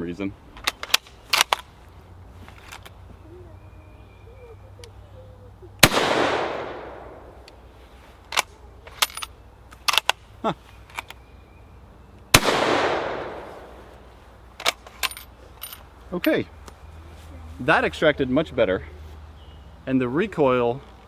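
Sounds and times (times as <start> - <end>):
rifle shots echoing: 5.8 - 7.4, 12.3 - 13.8.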